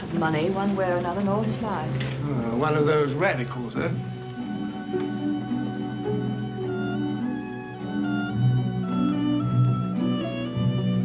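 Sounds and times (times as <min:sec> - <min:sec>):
violin string music: 0:00.0 - 0:11.0.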